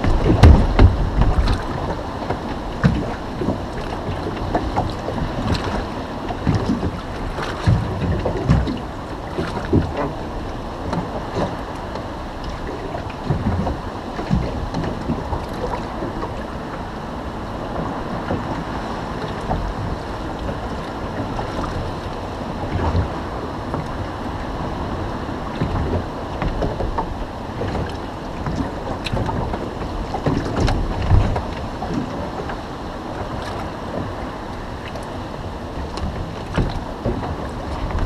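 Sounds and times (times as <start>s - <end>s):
low thumps: 0.0s - 3.6s
waves slapping boat hull: 0.0s - 38.0s
wind buffeting microphone: 0.0s - 38.0s.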